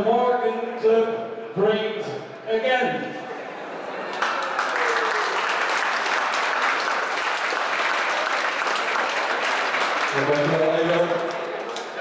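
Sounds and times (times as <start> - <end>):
crowd applauding: 4.0 - 12.0.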